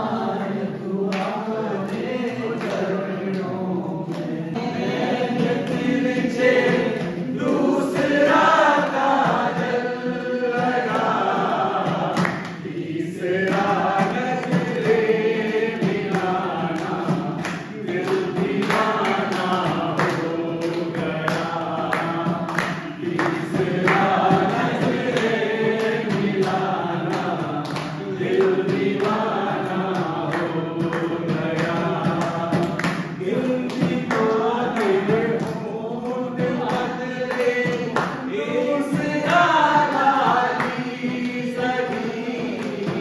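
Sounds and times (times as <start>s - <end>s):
hand claps: 0.0s - 43.0s
men singing together: 0.0s - 43.0s.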